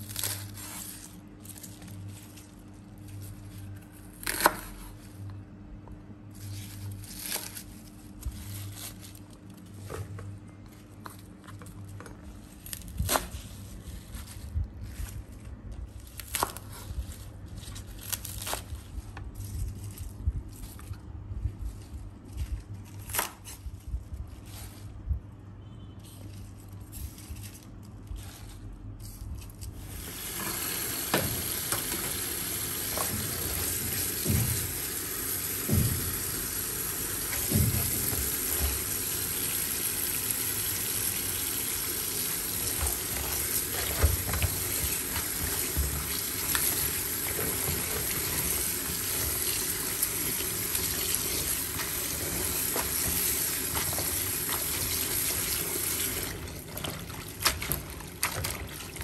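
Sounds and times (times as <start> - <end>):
tap water running into basin: 29.8 - 59.0
hands splashing leaves in water: 42.1 - 59.0.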